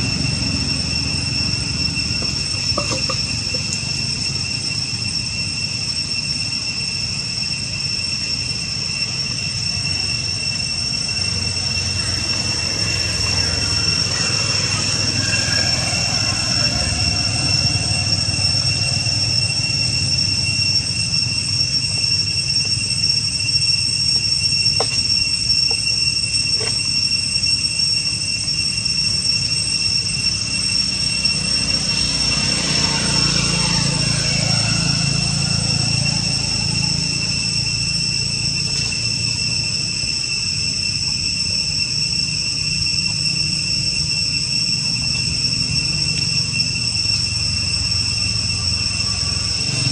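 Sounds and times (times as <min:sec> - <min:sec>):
insects droning: 0:00.0 - 0:49.9.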